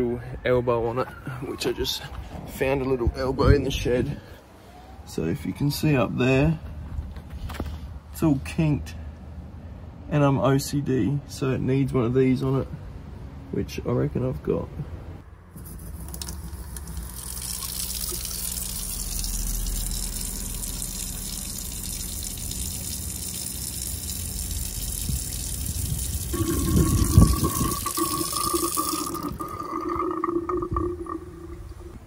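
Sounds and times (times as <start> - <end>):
steady hum: 15.5 - 32.0
tap water running into sink: 16.0 - 31.6.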